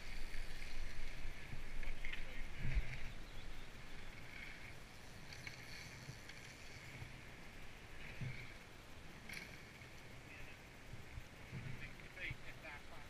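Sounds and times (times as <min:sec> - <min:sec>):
bike clicks and rattles: 0:04.1 - 0:07.2, 0:09.2 - 0:10.1.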